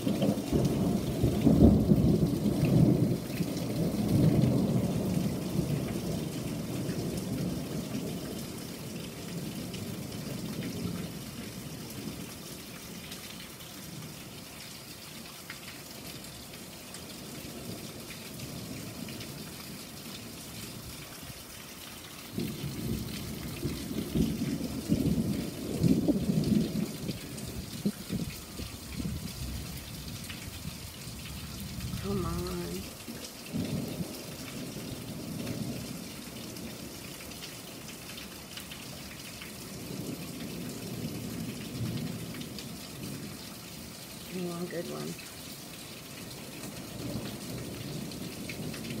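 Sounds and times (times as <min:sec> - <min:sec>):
thunder rumbling: 0:00.0 - 0:12.2, 0:22.3 - 0:37.0
steady rain: 0:00.0 - 0:49.0.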